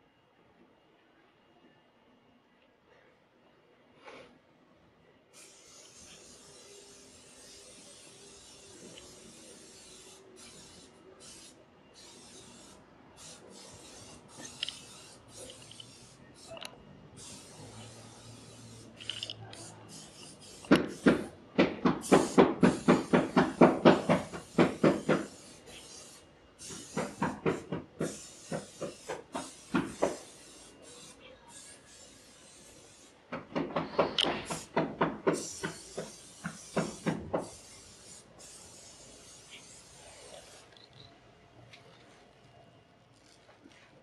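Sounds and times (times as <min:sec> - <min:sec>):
rapid banging from outside: 0:17.2 - 0:30.6, 0:32.6 - 0:39.8.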